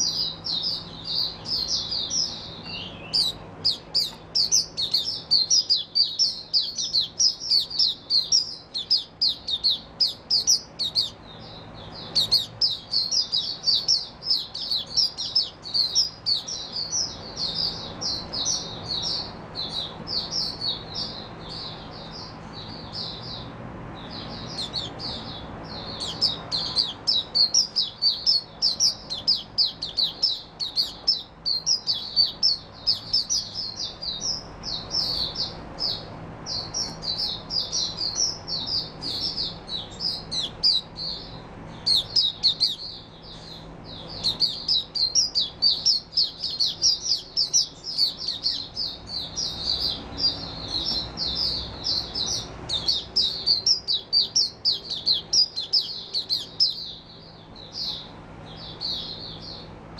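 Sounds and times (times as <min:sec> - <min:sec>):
bird twittering song: 0:00.0 - 0:59.9.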